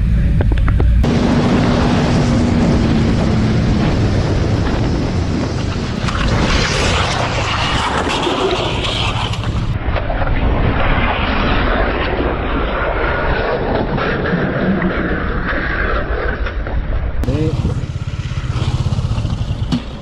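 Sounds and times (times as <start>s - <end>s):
motorcycle engine running: 0.0s - 6.0s, 17.2s - 20.0s
wind rushing over helmet: 0.1s - 15.4s
motorcycle crashing on road: 1.1s - 9.8s.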